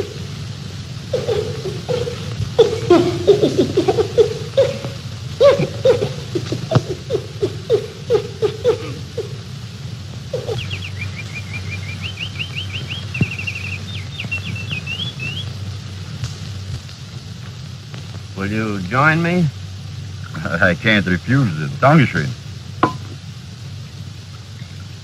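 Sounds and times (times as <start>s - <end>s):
chimpanzee hooting: 0.0s - 0.3s, 1.1s - 9.6s, 10.2s - 15.4s
bird trilled song: 10.4s - 15.6s.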